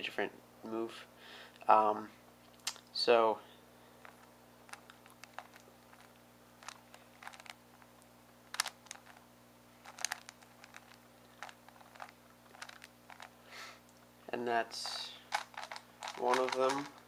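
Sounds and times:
plastic puzzle clicking: 8.5 - 9.2, 9.8 - 13.3, 15.3 - 17.0.

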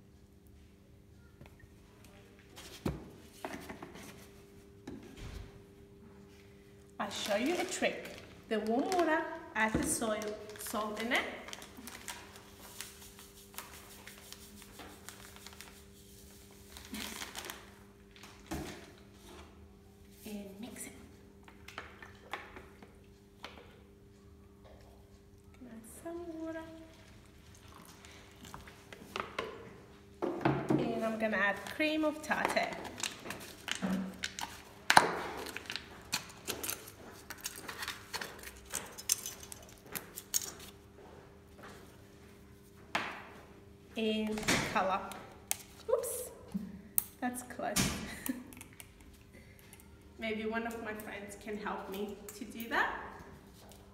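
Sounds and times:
plastic bag rustling: 7.0 - 18.5.

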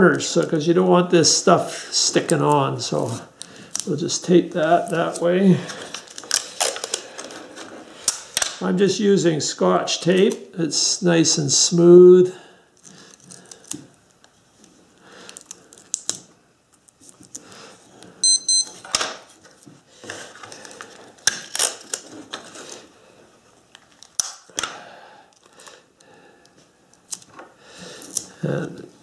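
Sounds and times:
tape clicks and crinkles: 2.2 - 8.6, 12.8 - 18.1, 18.7 - 22.9, 23.7 - 28.8.

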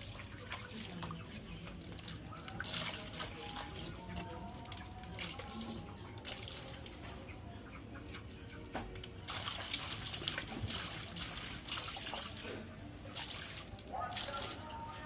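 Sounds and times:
gentle water movement: 0.0 - 15.0
hands splashing water: 9.3 - 14.7.

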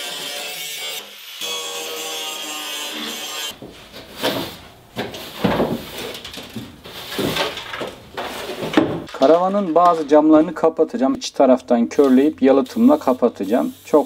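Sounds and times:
broom sweeping metal floor: 3.6 - 8.8.

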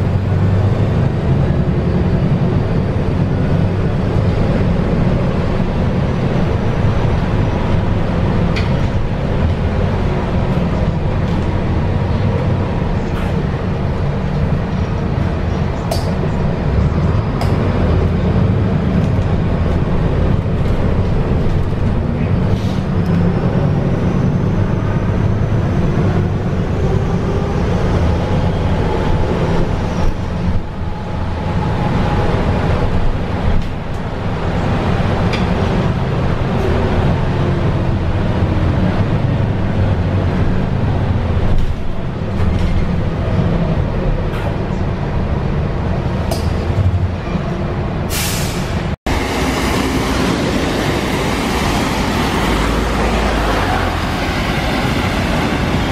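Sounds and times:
bus engine drone: 0.0 - 55.9
tyre noise on wet road: 48.2 - 55.9.

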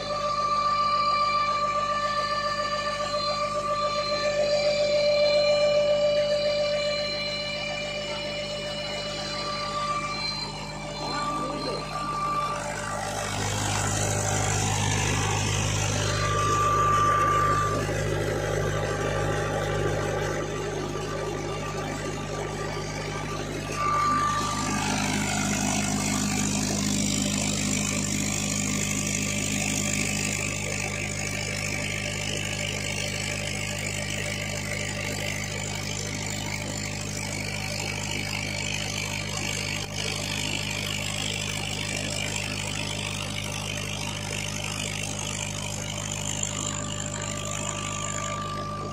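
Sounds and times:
brief high-pitched tone: 0.0 - 35.3, 44.4 - 48.9
diesel tractor engine running: 0.0 - 48.9.

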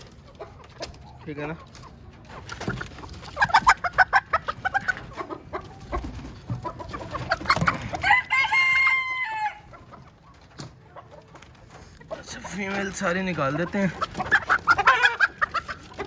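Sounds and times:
chickens squawking: 0.0 - 16.0.

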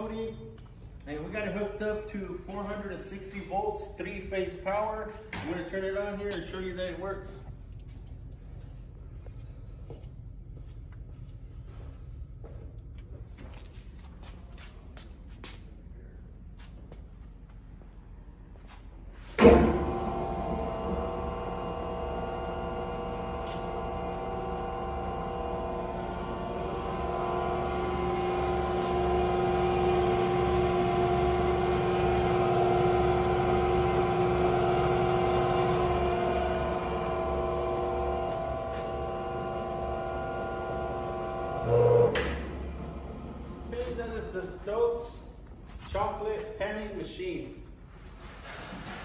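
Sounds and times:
motor starting with a jolt: 19.4 - 43.9
electric motor humming: 19.4 - 44.0.

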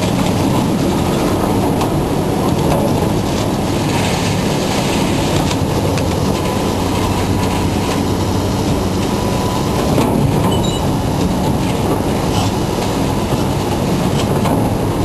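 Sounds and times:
heavy machinery engine drone: 0.0 - 15.0.

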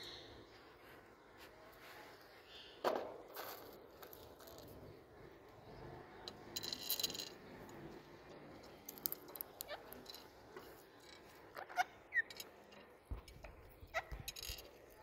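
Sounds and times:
parakeet squeaks: 11.6 - 12.4.

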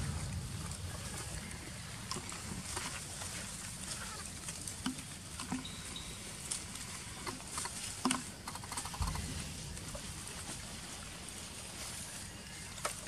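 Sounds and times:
low background rumble: 0.0 - 5.4, 9.0 - 12.7
rustling in leaf litter: 0.0 - 13.0
thin high chirp: 5.6 - 6.7.

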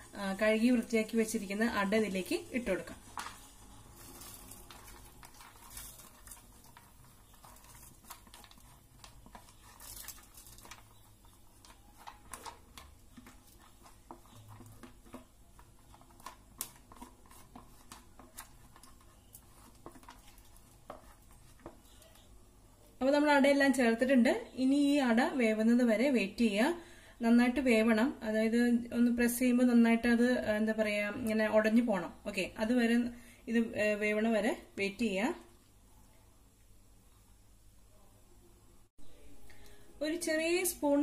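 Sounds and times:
spatula scraping plastic box: 4.0 - 22.0.

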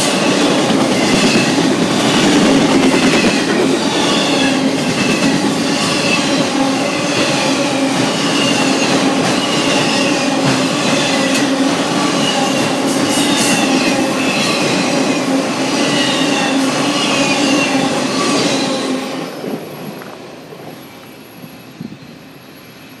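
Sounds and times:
freight cars rolling past: 0.2 - 5.8.

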